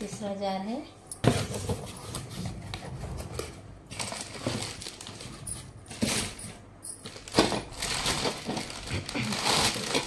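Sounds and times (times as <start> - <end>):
packaging rustling: 3.2 - 10.0.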